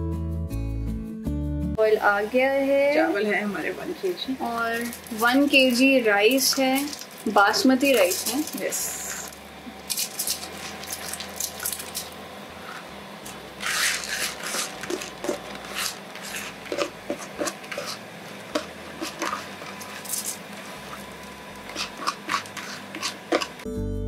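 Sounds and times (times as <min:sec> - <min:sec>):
wet rice squishing: 0:09.7 - 0:12.0.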